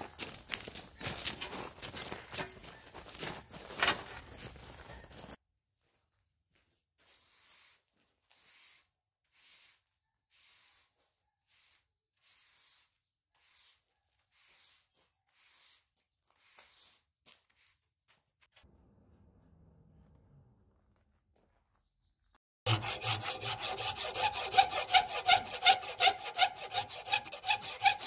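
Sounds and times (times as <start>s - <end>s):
push broom sweeping concrete: 7.0s - 17.8s.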